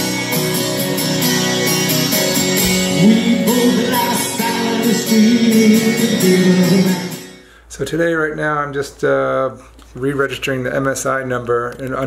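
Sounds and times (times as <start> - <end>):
rock band playing live: 0.0 - 7.4
man singing: 2.8 - 7.4.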